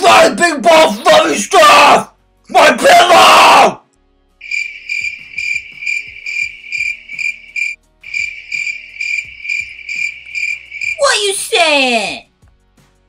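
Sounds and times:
cricket chirping: 0:04.4 - 0:11.0.

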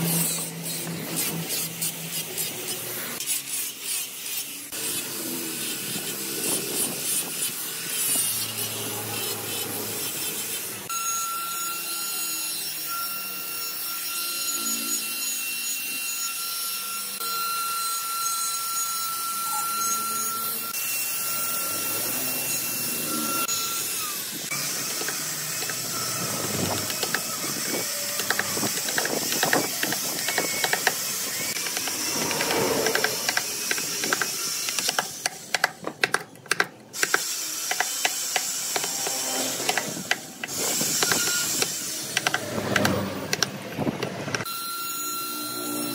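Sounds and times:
angle grinder sanding wood: 0:00.0 - 0:35.9, 0:37.0 - 0:42.6
die grinder whine: 0:00.0 - 0:45.9
rough grinding: 0:24.5 - 0:36.0.

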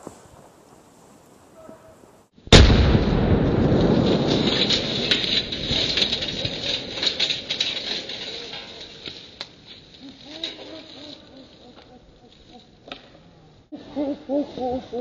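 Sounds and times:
hissing crackling rumble: 0:00.0 - 0:10.4
debris crackling down: 0:00.0 - 0:12.9
smoke charge explosion: 0:02.5 - 0:07.5.

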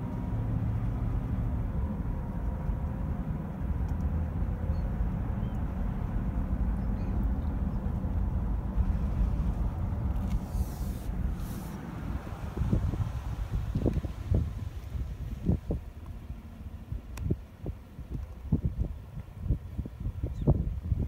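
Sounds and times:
car cabin road rumble: 0:00.0 - 0:21.0.

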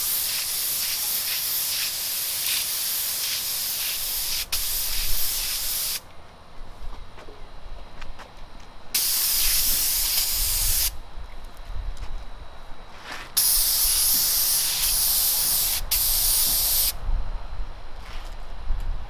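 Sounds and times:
paint spray gun hissing: 0:00.0 - 0:06.0, 0:09.0 - 0:11.0, 0:13.4 - 0:17.0.

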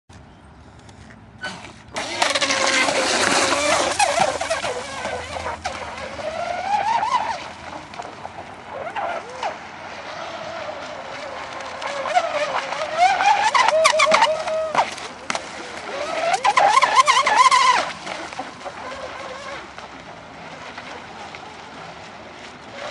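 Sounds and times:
electric motor whining: 0:01.5 - 0:08.2.

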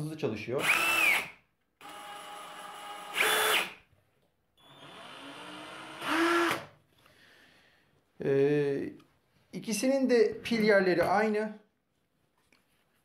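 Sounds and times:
cordless drill whirring: 0:00.6 - 0:03.8, 0:04.6 - 0:06.7.

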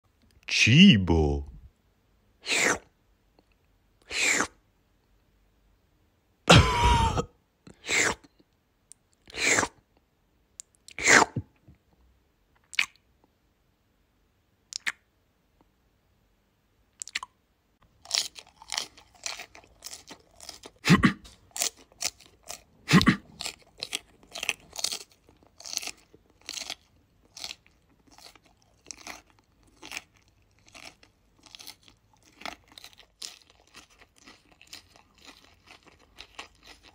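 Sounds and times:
crunchy chewing: 0:17.0 - 0:36.9.

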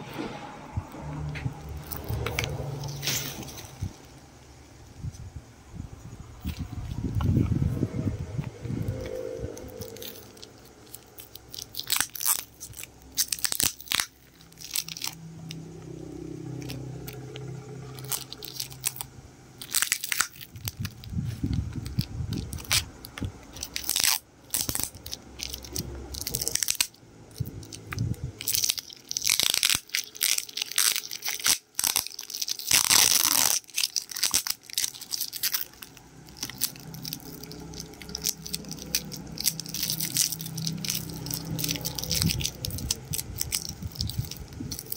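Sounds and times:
plastic shrink wrap crinkling: 0:08.8 - 0:15.6, 0:16.6 - 0:44.9.

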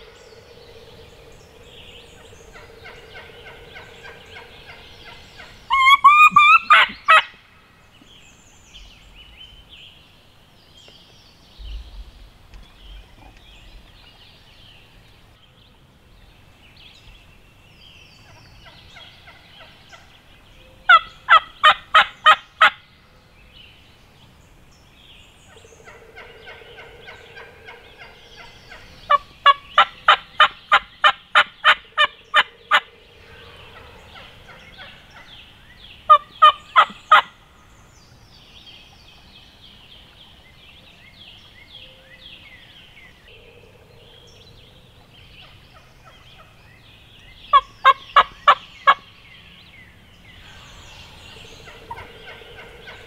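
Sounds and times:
faint high chirping: 0:00.0 - 0:07.1, 0:25.4 - 0:37.6
turkey calling: 0:00.0 - 0:07.4, 0:25.5 - 0:37.4, 0:47.5 - 0:49.0, 0:50.4 - 0:53.0.

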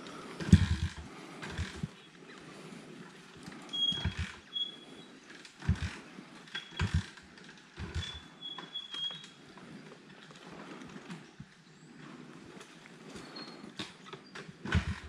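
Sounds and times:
motorcycle kick-start thumps: 0:00.4 - 0:01.9, 0:06.8 - 0:07.2, 0:14.6 - 0:15.0.

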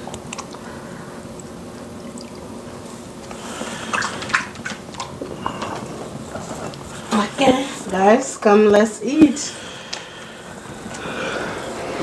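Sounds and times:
hands washing in water: 0:03.3 - 0:05.9
water splashes: 0:03.6 - 0:05.1.

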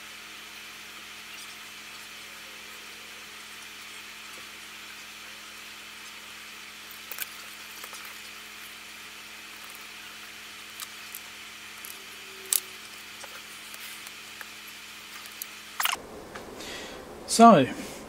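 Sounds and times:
low hum: 0:15.8 - 0:18.0
faint hiss: 0:16.0 - 0:18.0.

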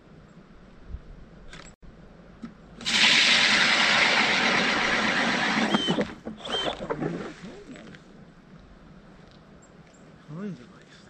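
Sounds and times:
ice auger rasping: 0:02.8 - 0:07.3.

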